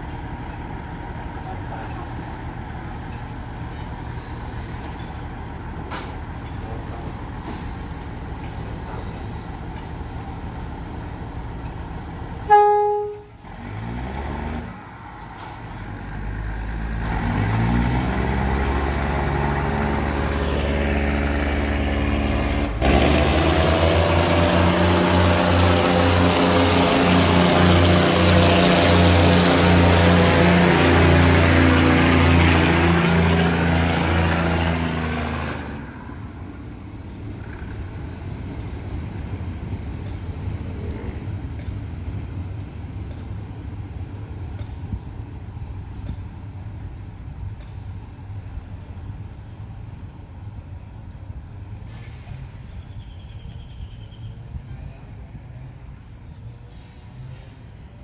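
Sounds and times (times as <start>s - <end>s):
diesel train engine: 0.0s - 58.0s
train horn blast: 12.4s - 13.7s.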